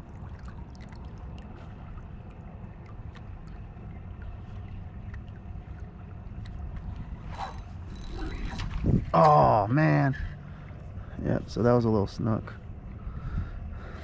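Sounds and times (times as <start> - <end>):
water lapping at hull: 0.0 - 14.0
wind on microphone: 6.6 - 9.2.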